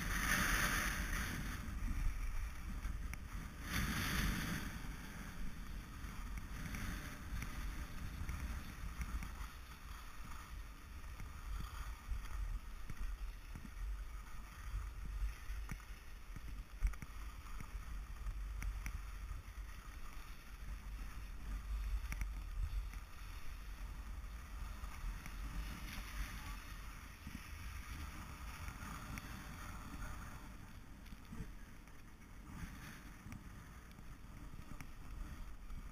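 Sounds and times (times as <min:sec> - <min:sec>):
skis scraping over snow: 0:00.0 - 0:35.9.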